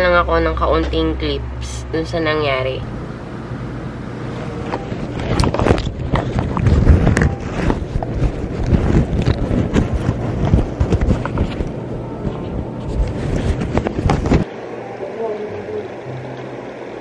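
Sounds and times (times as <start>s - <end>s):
steady low hum: 0.0s - 17.0s
knocks and bumps on camera: 4.8s - 14.4s
fabric rustling against microphone: 4.9s - 14.4s.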